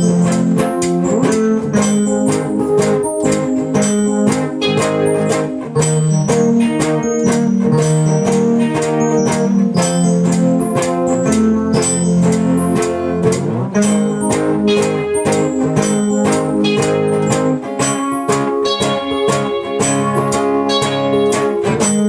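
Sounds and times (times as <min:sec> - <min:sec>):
held low notes: 0:00.0 - 0:22.0
plucked guitar notes: 0:00.0 - 0:22.0.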